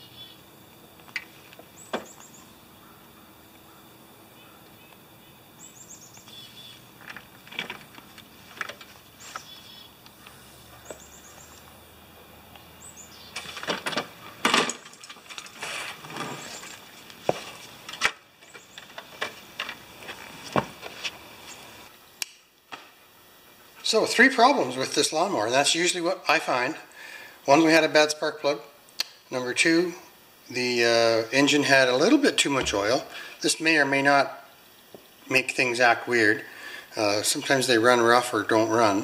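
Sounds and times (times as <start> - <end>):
bird chirps: 0.0 - 0.4, 1.7 - 6.9, 9.2 - 11.8, 12.6 - 13.5.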